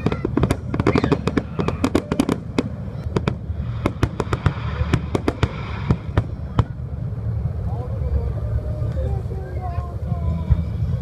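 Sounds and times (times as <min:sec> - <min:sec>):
firework shells bursting: 0:00.0 - 0:06.8
continuous low rumble: 0:00.0 - 0:11.0.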